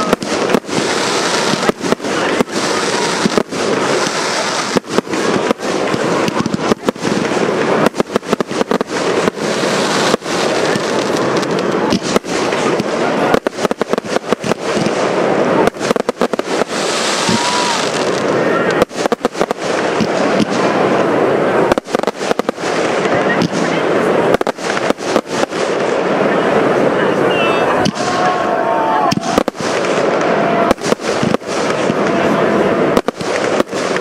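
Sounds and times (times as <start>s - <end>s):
firework bursting reports: 0.0s - 34.0s
firework crackling: 0.0s - 34.0s
firework launch thumps: 10.1s - 15.0s, 32.9s - 34.0s.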